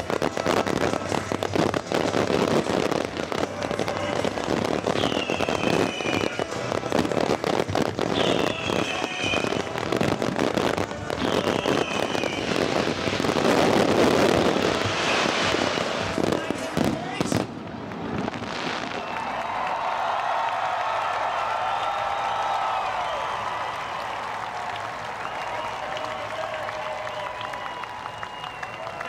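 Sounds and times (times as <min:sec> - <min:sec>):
fireworks crackling and popping: 0:00.0 - 0:29.0
falling whistle tone: 0:05.0 - 0:06.3, 0:11.2 - 0:12.5, 0:25.2 - 0:29.0.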